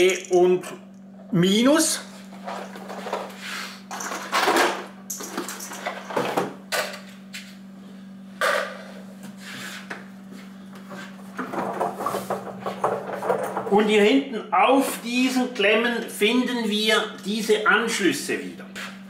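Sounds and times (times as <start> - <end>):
steady low hum: 0.0 - 19.0
fridge knocking and scraping on table: 11.3 - 13.8.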